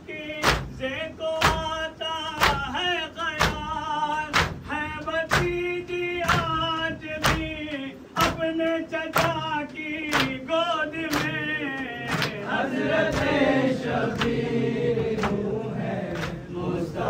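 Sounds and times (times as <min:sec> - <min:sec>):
hands slapping chests: 0:04.3 - 0:04.7, 0:10.1 - 0:10.4, 0:11.1 - 0:11.4, 0:12.1 - 0:16.5.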